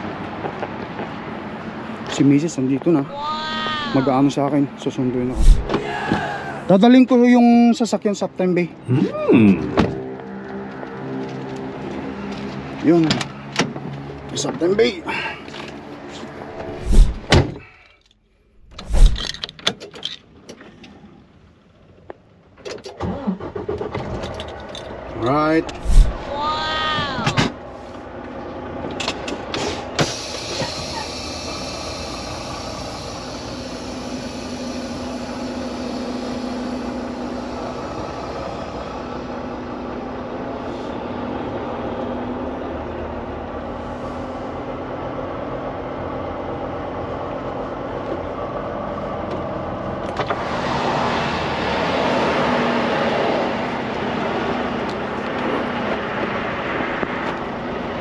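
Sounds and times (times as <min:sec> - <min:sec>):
diesel truck engine running: 0:23.4 - 0:50.2
rushing hiss: 0:30.0 - 0:39.4.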